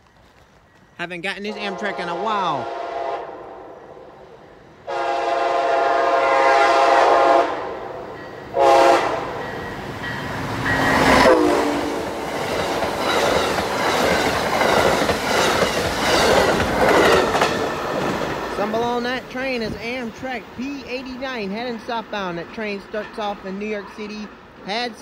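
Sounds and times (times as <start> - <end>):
locomotive passing: 0.0 - 25.0
train horn blasts: 1.5 - 4.0, 4.9 - 9.4, 11.0 - 12.2
train wheels clickety-clack on rails: 8.1 - 25.0.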